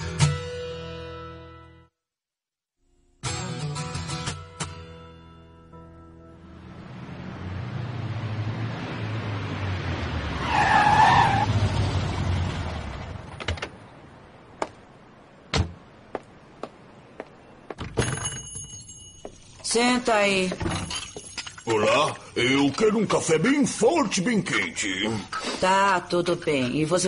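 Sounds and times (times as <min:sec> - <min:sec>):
vehicle engine rumble: 0:06.2 - 0:17.8
brake squeal: 0:10.3 - 0:12.3
shop door bell ringing: 0:18.0 - 0:20.0, 0:20.7 - 0:22.1.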